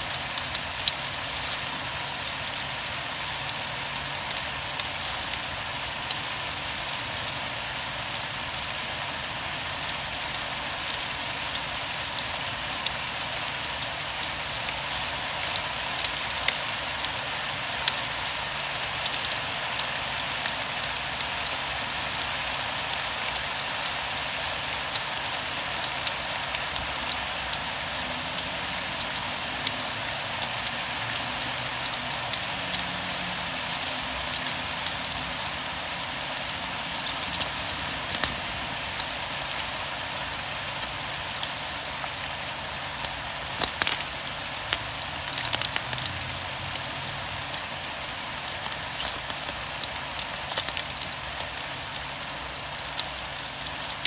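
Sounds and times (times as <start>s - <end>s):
raindrops tapping a surface: 0.0s - 54.0s
steady rain: 0.0s - 54.0s.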